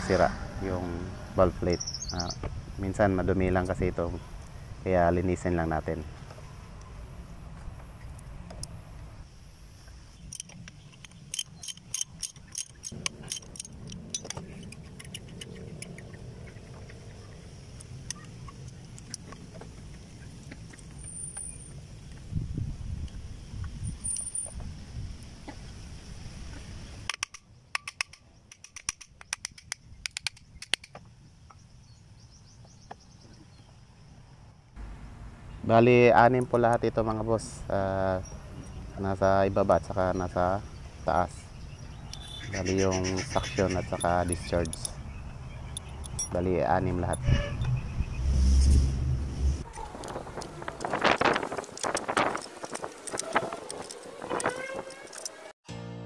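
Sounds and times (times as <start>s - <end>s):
low rumble: 0.0s - 3.8s
small metal parts clicking: 10.2s - 16.1s, 44.0s - 45.0s, 45.7s - 46.4s, 50.0s - 55.4s.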